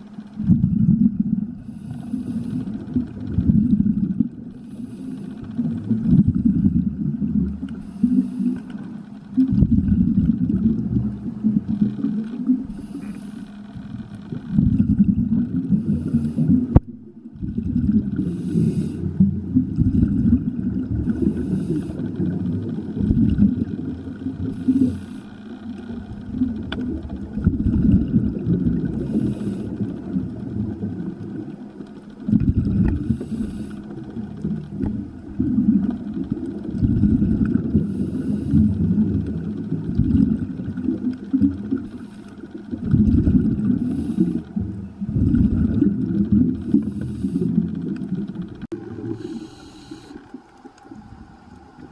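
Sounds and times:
rumble of exhaled bubbles: 0.0s - 51.9s
regulator hiss on inhale: 1.6s - 3.0s, 4.5s - 6.0s, 7.6s - 9.2s, 11.8s - 14.6s, 15.7s - 16.8s, 18.1s - 19.4s, 20.9s - 26.3s, 28.8s - 31.1s, 32.1s - 35.0s, 36.1s - 40.0s, 40.7s - 42.8s, 43.6s - 44.7s, 46.2s - 48.2s, 48.9s - 51.9s.

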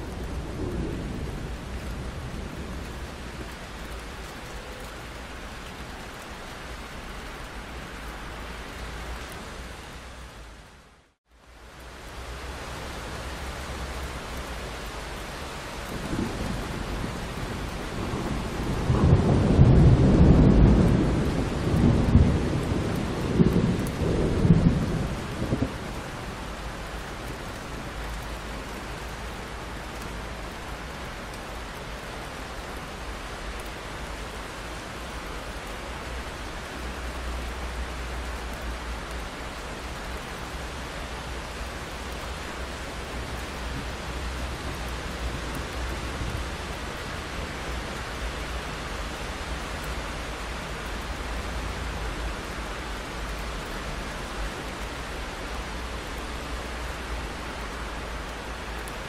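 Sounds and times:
steady rain: 0.0s - 59.0s
rolling thunder: 15.9s - 26.0s.

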